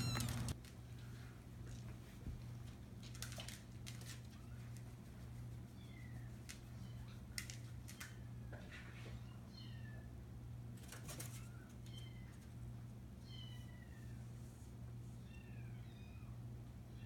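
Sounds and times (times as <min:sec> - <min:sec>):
kitten mewing: 0:00.0 - 0:00.6
low steady hum: 0:00.0 - 0:17.0.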